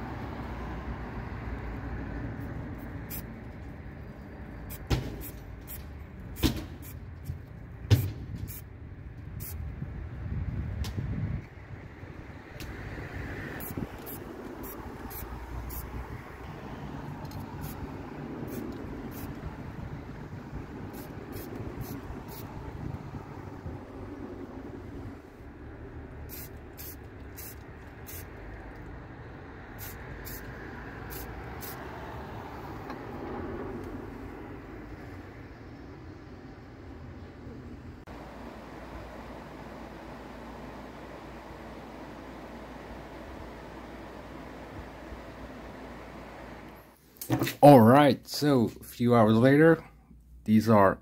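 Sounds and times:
low background rumble: 13.2s - 30.2s
aerosol spray can spraying: 18.4s - 19.4s, 20.9s - 22.5s, 26.3s - 28.3s, 29.8s - 30.5s, 31.1s - 31.8s.

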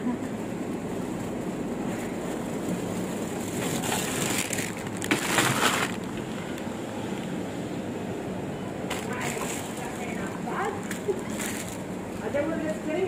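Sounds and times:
plastic bags crinkling: 2.0s - 6.7s, 8.9s - 11.9s.

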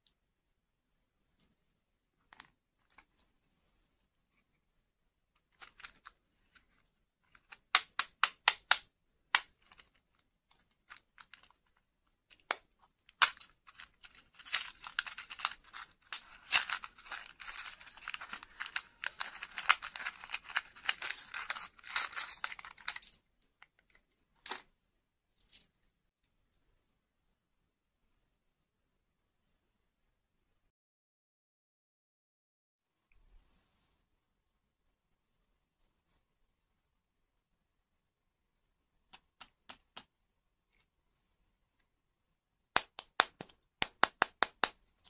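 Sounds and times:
sharp taps and clicks: 39.1s - 40.1s, 42.7s - 44.8s.

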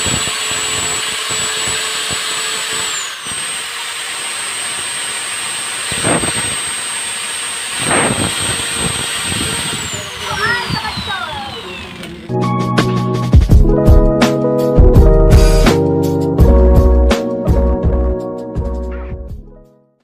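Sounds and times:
angle grinder whining: 0.0s - 12.4s.

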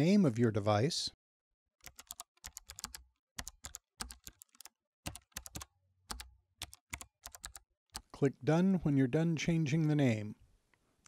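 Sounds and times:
keyboard typing: 1.8s - 8.1s.

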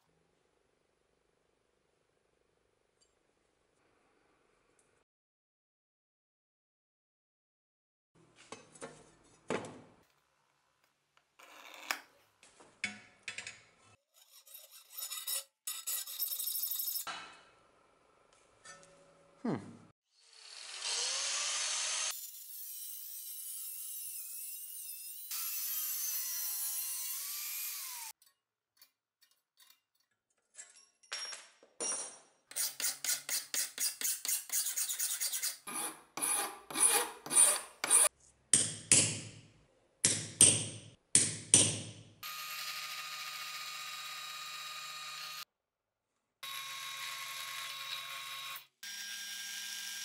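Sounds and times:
file stroking brass: 14.1s - 17.0s, 32.5s - 38.1s
bench drill boring brass: 42.3s - 45.4s, 46.4s - 50.0s.

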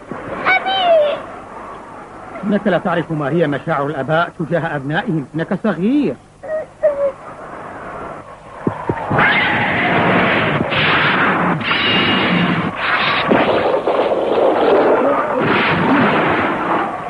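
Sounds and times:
thunder crashing: 8.6s - 17.0s.

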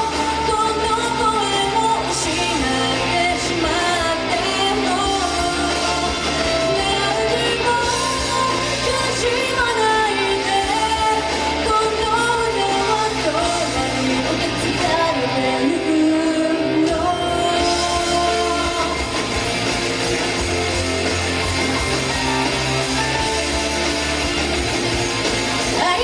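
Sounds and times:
woman singing: 0.0s - 19.3s, 25.7s - 26.0s
rock backing music: 0.0s - 26.0s.

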